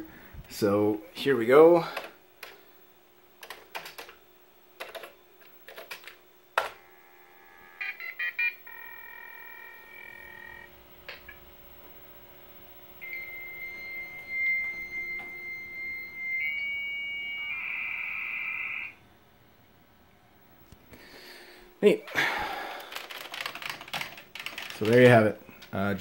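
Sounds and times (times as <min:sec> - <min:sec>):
keyboard keys clicking: 0:03.4 - 0:04.2, 0:04.8 - 0:06.7, 0:22.8 - 0:25.8
phone line ringing tone: 0:07.6 - 0:11.4, 0:13.0 - 0:19.0
modem answer tone: 0:13.0 - 0:19.0.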